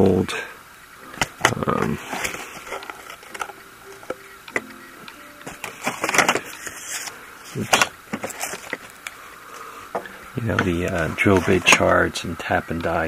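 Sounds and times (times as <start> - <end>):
cardboard rustling: 1.2 - 4.7, 5.4 - 9.7, 10.5 - 12.0.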